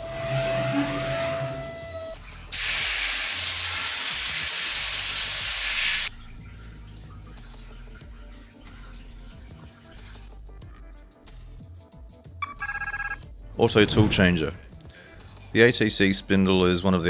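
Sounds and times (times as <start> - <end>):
loud steady hiss: 2.6 - 6.1.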